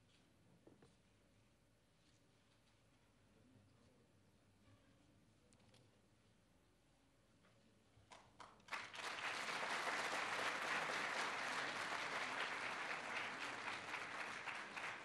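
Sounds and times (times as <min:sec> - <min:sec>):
audience applauding: 0:08.7 - 0:15.0.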